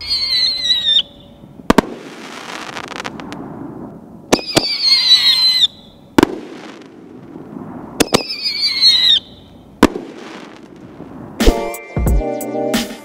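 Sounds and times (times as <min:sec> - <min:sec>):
firework shell whistling: 0:00.0 - 0:03.4, 0:04.3 - 0:11.7
mortar launch cracks: 0:09.8 - 0:10.8.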